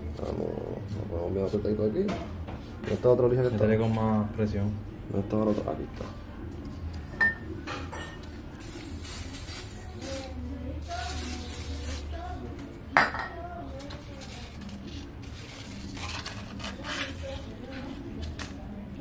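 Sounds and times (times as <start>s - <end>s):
aerosol can spraying: 8.6s - 12.1s.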